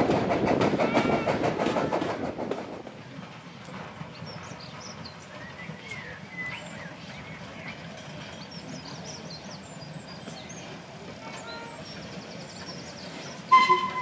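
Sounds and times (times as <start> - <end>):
small birds chirping: 4.0 - 13.5.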